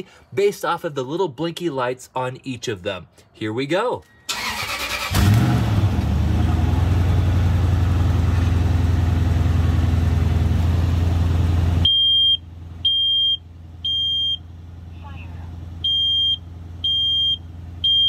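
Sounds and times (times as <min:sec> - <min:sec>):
truck engine cranking and idling: 0:04.0 - 0:18.0
high-pitched alarm beeps: 0:11.9 - 0:14.4, 0:15.8 - 0:18.0.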